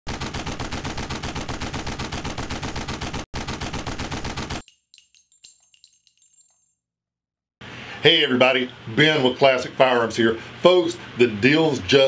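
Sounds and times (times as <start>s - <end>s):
rapid automatic gunfire: 0.1s - 4.6s
faint metallic tinkling: 4.6s - 6.9s.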